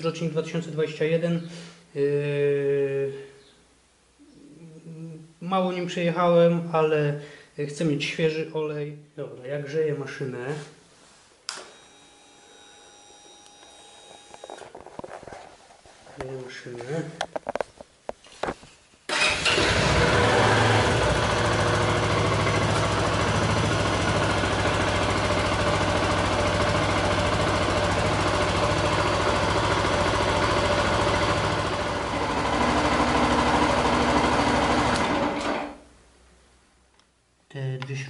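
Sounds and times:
motorcycle engine idling: 0:19.1 - 0:35.3.

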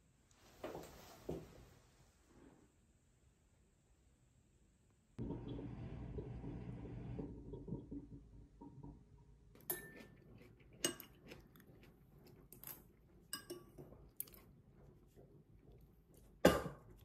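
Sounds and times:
dishes and cutlery clinking: 0:09.6 - 0:11.4, 0:12.5 - 0:14.4.

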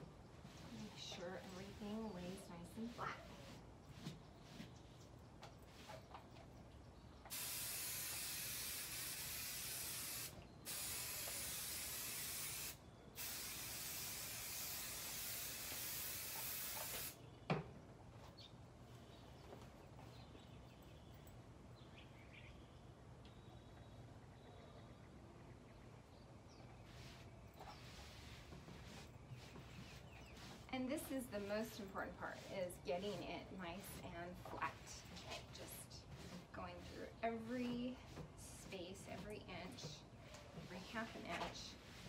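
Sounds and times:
aerosol can spraying: 0:07.3 - 0:17.2.

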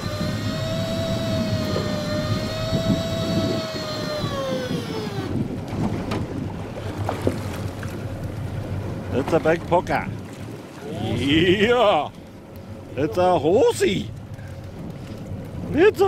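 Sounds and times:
electric fishing reel motor whining: 0:00.0 - 0:05.4
boat rumble: 0:00.0 - 0:16.0
wind: 0:00.0 - 0:16.0.

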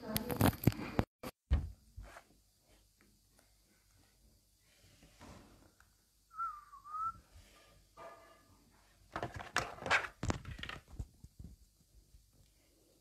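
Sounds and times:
wavering whistle: 0:06.3 - 0:07.3.

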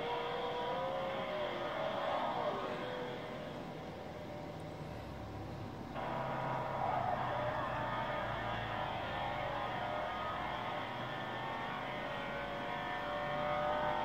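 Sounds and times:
loud engine running hard: 0:00.0 - 0:14.0.

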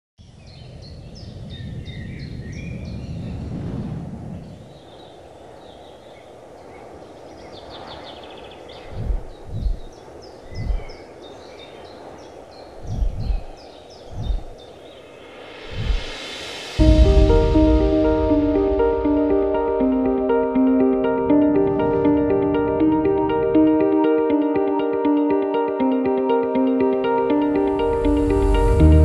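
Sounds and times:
small birds chirping: 0:00.2 - 0:03.5, 0:04.4 - 0:16.8
low rumble: 0:15.6 - 0:24.4, 0:27.4 - 0:29.0.

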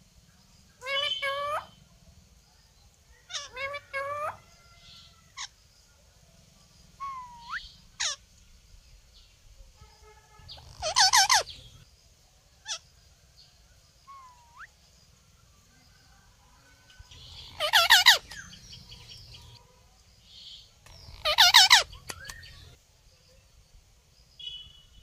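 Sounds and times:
parakeets calling and squawking: 0:00.8 - 0:01.7, 0:07.0 - 0:08.2, 0:10.5 - 0:11.8, 0:17.2 - 0:19.6, 0:20.9 - 0:22.7.

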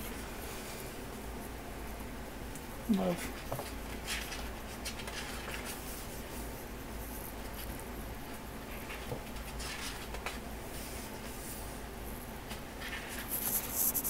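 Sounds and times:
steady low hum: 0:00.0 - 0:14.0
paper pages rustling: 0:12.5 - 0:14.0.

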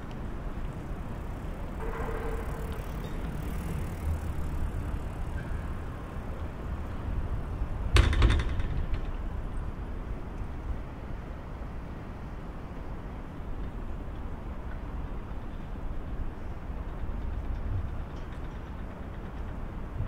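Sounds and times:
distant traffic rumble: 0:00.0 - 0:20.0
sharp clatter of knocks: 0:07.9 - 0:09.3.

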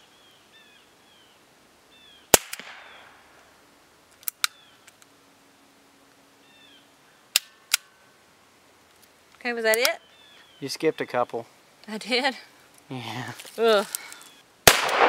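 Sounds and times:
quieter sharp cracks: 0:02.3 - 0:03.5, 0:14.6 - 0:15.0
muffled suppressed gunshot: 0:14.7 - 0:15.0.

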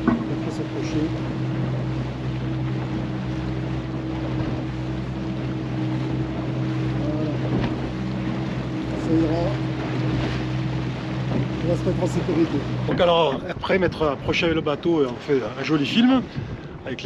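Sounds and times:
boat motor humming: 0:00.0 - 0:17.0
wind on microphone: 0:15.8 - 0:17.0.

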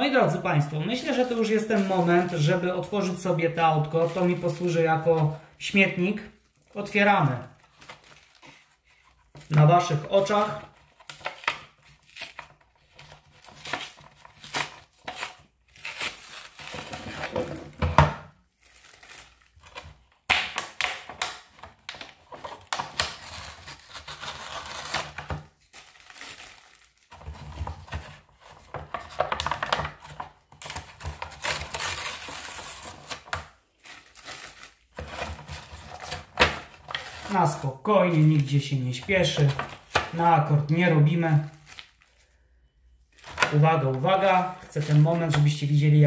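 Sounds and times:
cardboard tearing and peeling: 0:10.3 - 0:17.7, 0:22.0 - 0:29.4, 0:30.4 - 0:37.4.

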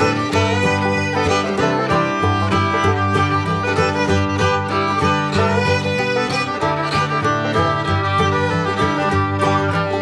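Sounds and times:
fiddle playing: 0:00.0 - 0:10.0
guitar: 0:00.0 - 0:10.0.

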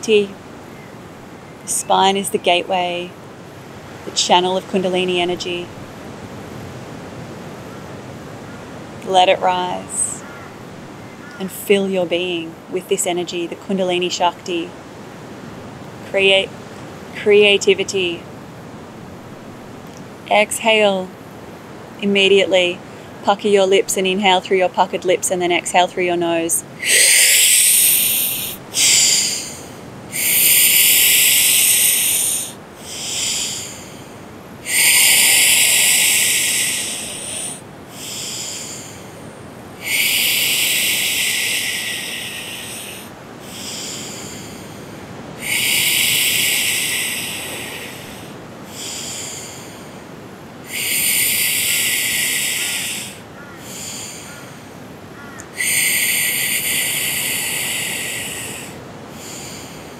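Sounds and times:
woman breathing with hissing breaths: 0:26.8 - 0:59.9.

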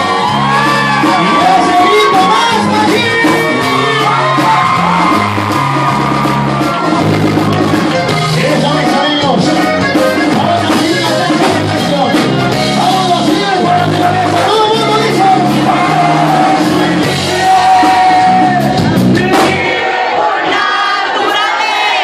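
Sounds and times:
lead singer singing: 0:00.0 - 0:05.7, 0:08.3 - 0:21.7
live band playing: 0:00.0 - 0:22.0
button accordion: 0:05.2 - 0:18.1.

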